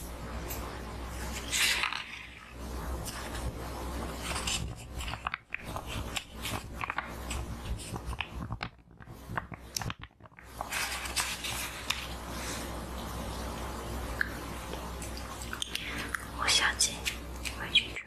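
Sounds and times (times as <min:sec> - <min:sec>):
paper envelope crinkling: 0:01.1 - 0:12.6.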